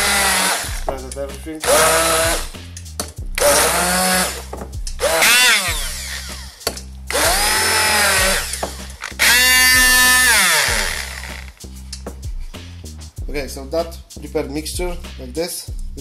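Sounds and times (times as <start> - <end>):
immersion blender motor whining: 0.0 - 0.8, 1.7 - 2.5, 3.4 - 4.4, 5.0 - 6.5, 7.1 - 11.5.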